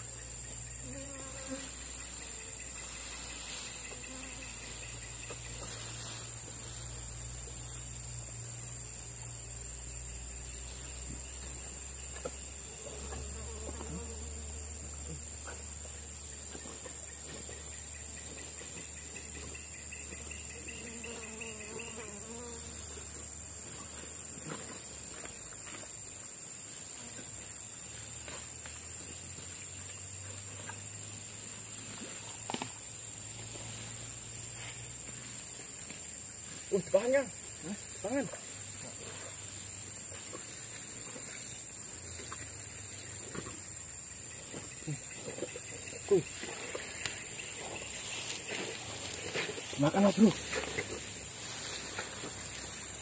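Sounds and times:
insects trilling: 0.0 - 53.0
rustles: 0.0 - 53.0
faint ticks: 46.8 - 47.5.

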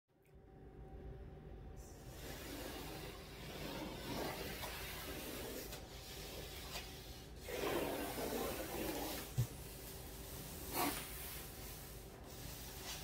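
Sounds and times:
hands scraping on cardboard: 2.4 - 13.0.

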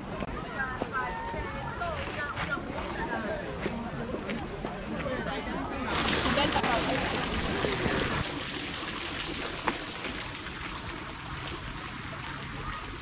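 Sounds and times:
fountain water splashing: 5.8 - 13.0.

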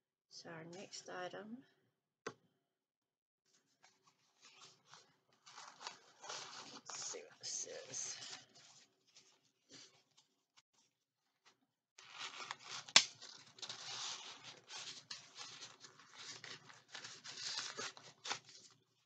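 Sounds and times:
packaging rustling and tearing: 3.8 - 10.0, 12.0 - 18.8.

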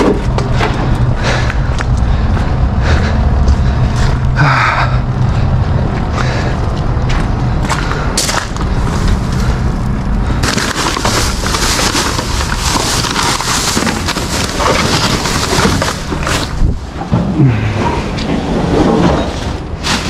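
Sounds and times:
plastic bags rustling: 8.6 - 16.9, 19.3 - 20.0
wind buffeting microphone: 16.4 - 18.8.

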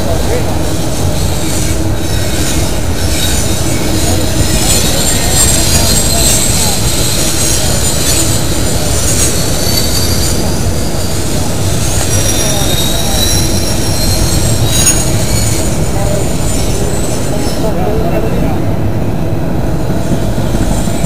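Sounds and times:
train wheels rumbling on rail: 0.0 - 21.0
high-pitched wheel squeals: 1.2 - 17.8.

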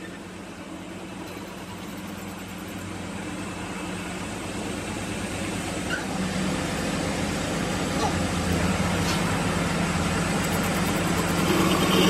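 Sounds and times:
metal lathe humming: 10.1 - 12.0.

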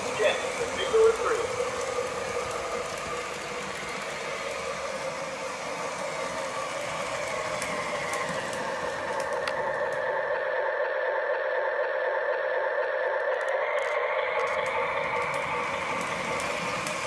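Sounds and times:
model train motor hum: 0.0 - 17.0.

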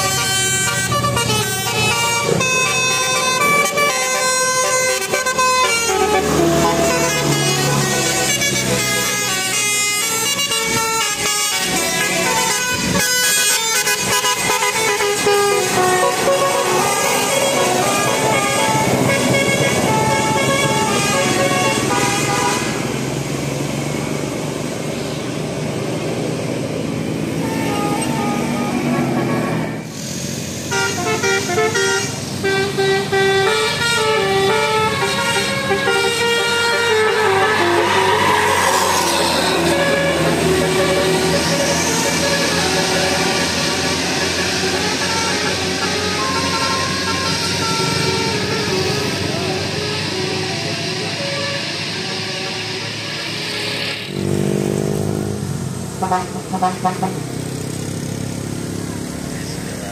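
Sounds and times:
multi-tone air horn melody: 0.0 - 23.1, 27.4 - 30.0, 30.6 - 54.1, 56.0 - 57.2
motorcycle passing on wet road: 34.6 - 59.9.

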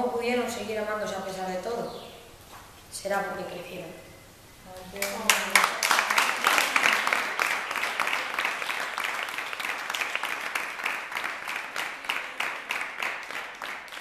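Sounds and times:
group clapping: 5.0 - 14.0.

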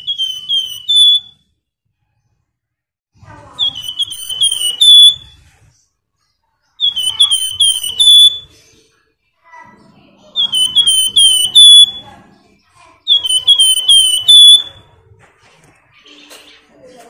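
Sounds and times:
songbird whistling: 0.0 - 1.5, 3.6 - 5.4, 6.8 - 8.8, 10.2 - 12.3, 13.0 - 15.0.

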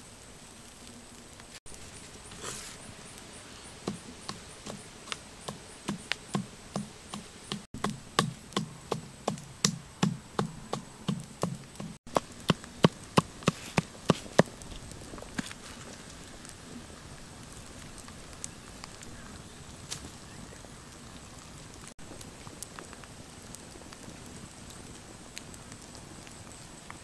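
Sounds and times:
pestle pounding in a mortar: 7.5 - 14.5.

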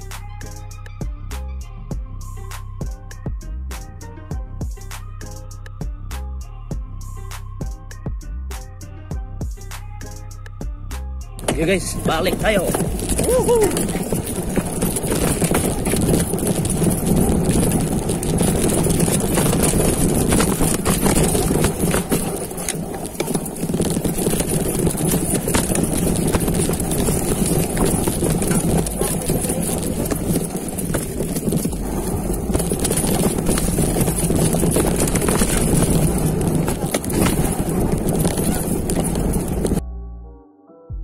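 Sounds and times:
bike rattling and knocking: 11.4 - 39.8
bike rumbling on dirt trail: 11.4 - 39.8.

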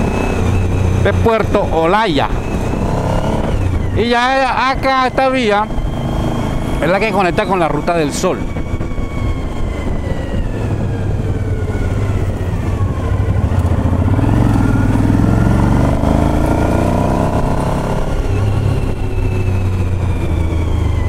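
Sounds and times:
motorcycle engine accelerating: 0.0 - 21.0.

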